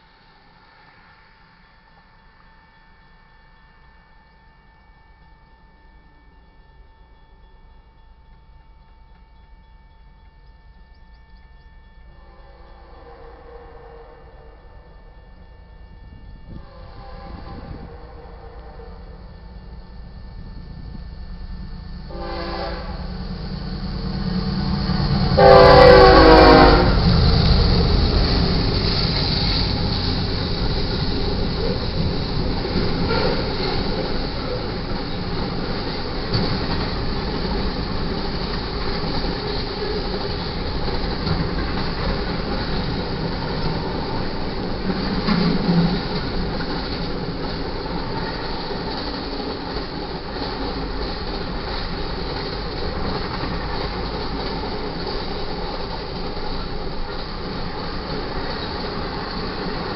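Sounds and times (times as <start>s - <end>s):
train rumble: 0.0s - 59.9s
locomotive air horn blasts: 12.2s - 14.9s, 15.8s - 19.3s, 22.1s - 23.2s, 25.3s - 28.2s, 32.8s - 34.0s
train wheel clatter: 19.1s - 59.9s.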